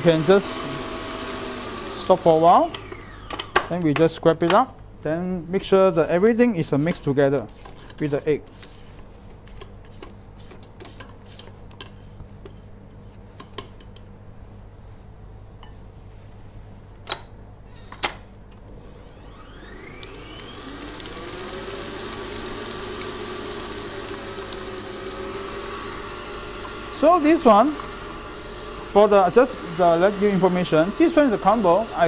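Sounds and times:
stand mixer motor whining: 0.0 - 3.6, 18.8 - 32.0.

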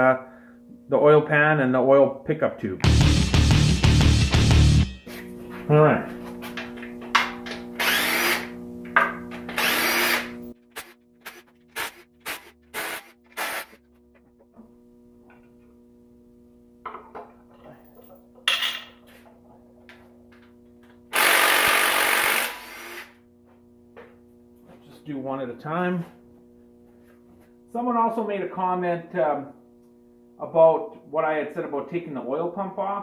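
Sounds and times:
cordless drill spinning bolts: 7.8 - 8.5, 9.5 - 13.7, 21.1 - 23.1.

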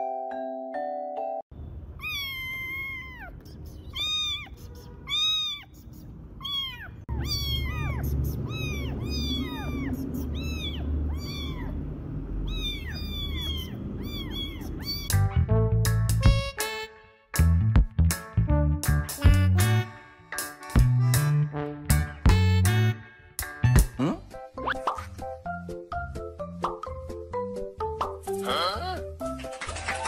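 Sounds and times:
cat meowing: 2.0 - 11.8, 12.4 - 15.2
low rumble: 7.1 - 15.8.

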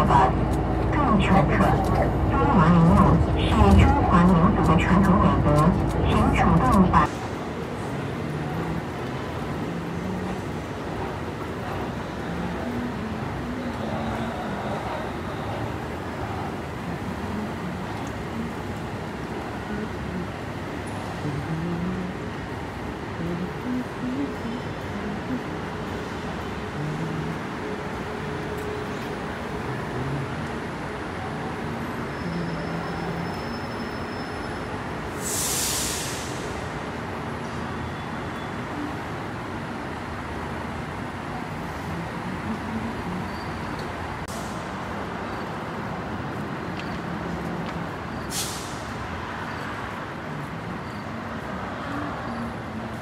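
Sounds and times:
road traffic rumble: 0.0 - 53.0
air hiss: 35.2 - 36.7, 48.3 - 49.0.

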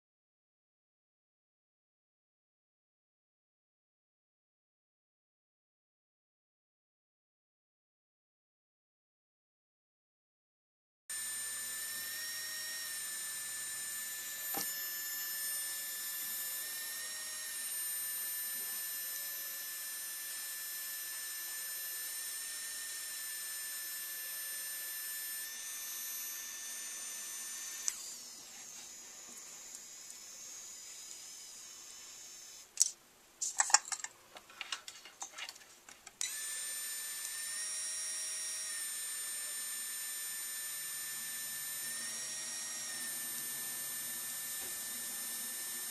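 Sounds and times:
pen motor high whine: 11.1 - 32.9, 36.2 - 45.9
sharp clicks and knocks: 32.8 - 36.3.

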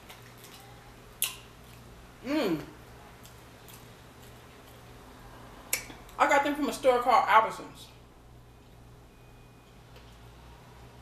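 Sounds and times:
person vocal sound: 2.2 - 2.8.

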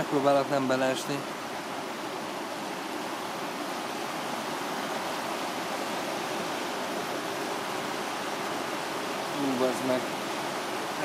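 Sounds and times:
river rapids rushing: 0.0 - 11.0.

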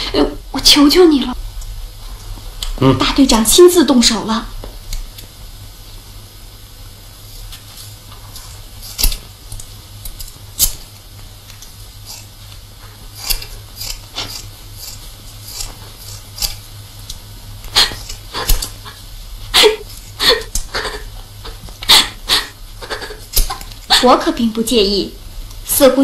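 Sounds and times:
steady low hum: 0.0 - 26.0
scissors snipping hair: 8.3 - 10.8, 11.5 - 12.3, 13.2 - 19.0, 19.9 - 20.8, 23.0 - 23.9
woman sobbing: 17.8 - 24.2.

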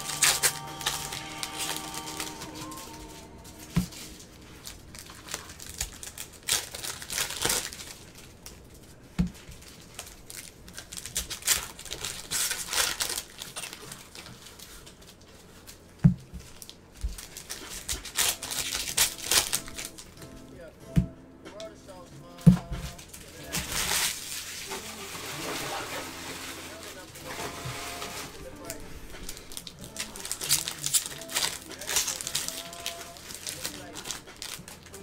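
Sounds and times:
foil wrappers crinkling and tearing: 0.0 - 20.3, 22.7 - 35.0.

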